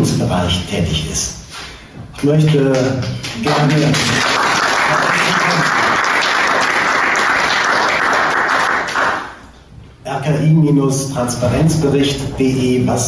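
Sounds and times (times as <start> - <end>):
audience applauding: 2.4 - 9.4.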